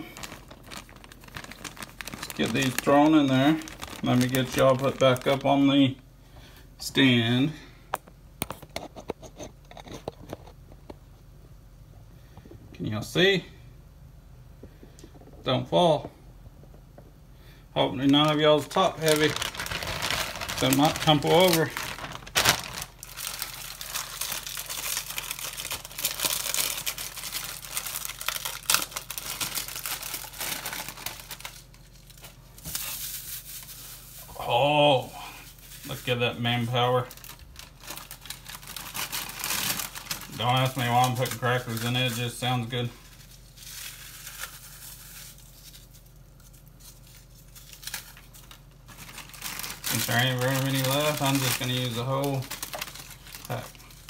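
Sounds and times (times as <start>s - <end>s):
crackers crushed in paper wrapper: 0.0s - 6.0s, 17.8s - 54.0s
plastic sleeve crinkling: 0.0s - 6.0s, 17.8s - 54.0s.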